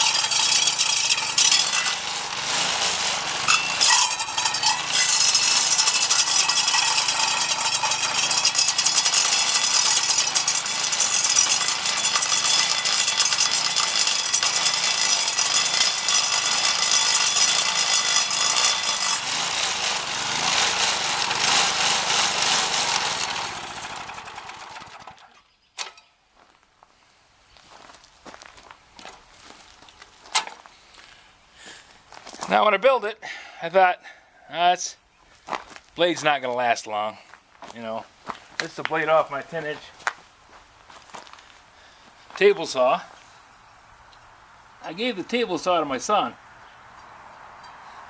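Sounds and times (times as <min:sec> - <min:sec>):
small engine drone: 0:00.0 - 0:25.4
saw blade rattling tearing chips: 0:00.0 - 0:26.0.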